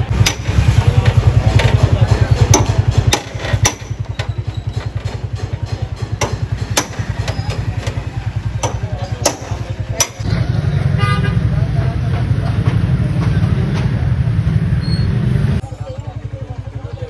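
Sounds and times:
engine idling: 0:00.0 - 0:14.6, 0:15.5 - 0:17.0
hammer striking chisel on metal: 0:00.1 - 0:10.3.

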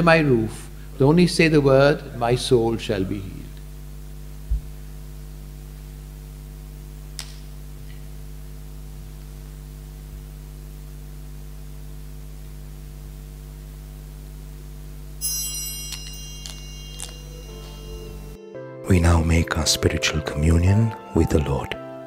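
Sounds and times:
electrical mains hum: 0:00.0 - 0:22.0.

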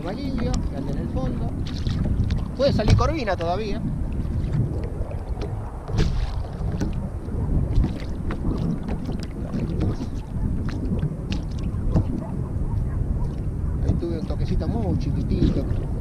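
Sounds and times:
lapping water: 0:00.0 - 0:16.0
wind buffeting microphone: 0:00.0 - 0:16.0.

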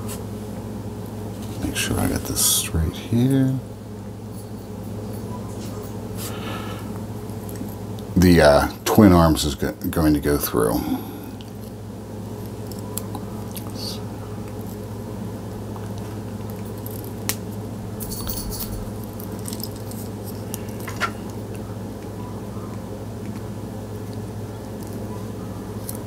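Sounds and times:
steady low hum: 0:00.0 - 0:26.0
wire rustling: 0:17.9 - 0:21.3.

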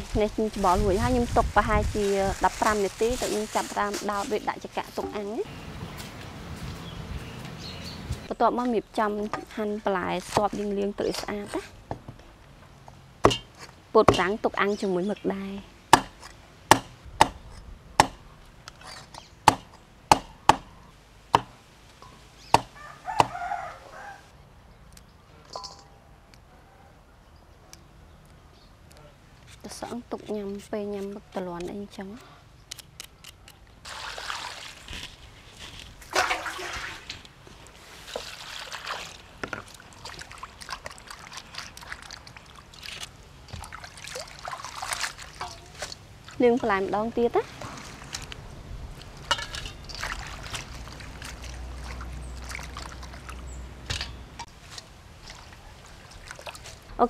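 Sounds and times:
cleaver chopping on wooden board: 0:13.2 - 0:13.5, 0:16.0 - 0:17.4, 0:18.0 - 0:18.2, 0:19.5 - 0:20.7, 0:21.4 - 0:21.6, 0:22.6 - 0:23.4
hands sloshing vegetables in water: 0:33.9 - 0:48.3, 0:49.0 - 0:53.5, 0:54.6 - 0:56.9
water poured into steel bowl: 0:36.1 - 0:37.2.

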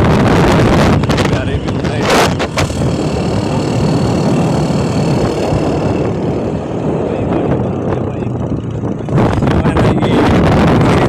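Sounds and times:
motorcycle engine: 0:00.0 - 0:11.0
wind rushing over microphone: 0:00.0 - 0:11.0.

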